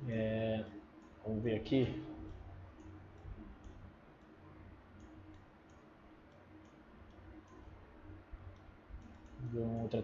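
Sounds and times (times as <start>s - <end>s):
faint computer mouse clicks: 2.3s - 7.7s, 8.5s - 10.0s.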